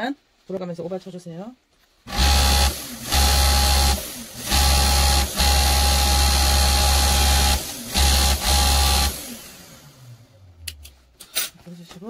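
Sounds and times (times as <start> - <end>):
overlock sewing machine running: 2.1 - 9.9.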